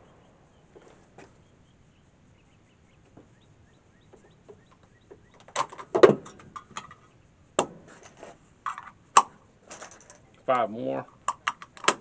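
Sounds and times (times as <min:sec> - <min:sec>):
rifle being handled clacks: 0:11.2 - 0:12.0.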